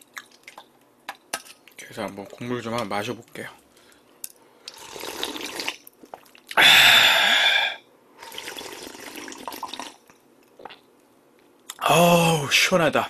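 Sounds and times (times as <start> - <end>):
person slurping soup: 4.7 - 5.8, 7.5 - 9.9.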